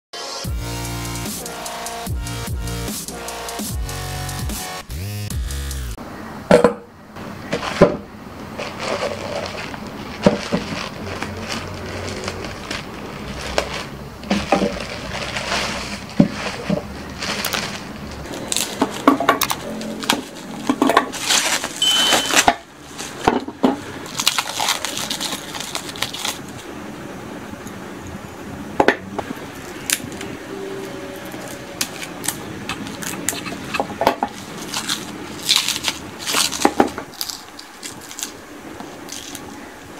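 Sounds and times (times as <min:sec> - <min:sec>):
bubble wrap rustling: 0:07.4 - 0:26.8, 0:31.2 - 0:39.9.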